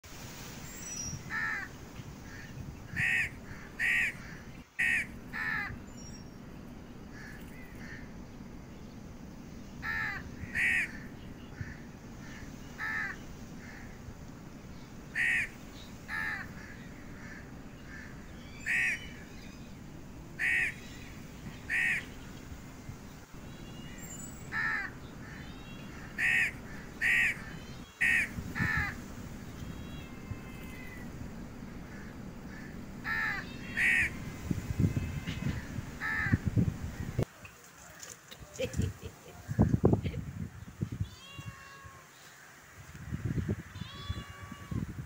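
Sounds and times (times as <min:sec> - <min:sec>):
low background noise: 0:00.1 - 0:45.0
crows cawing: 0:01.3 - 0:01.7, 0:02.3 - 0:05.8, 0:07.1 - 0:08.2, 0:09.8 - 0:14.1, 0:15.1 - 0:19.3, 0:20.4 - 0:20.9, 0:21.6 - 0:22.2, 0:24.5 - 0:29.0, 0:29.9 - 0:37.1.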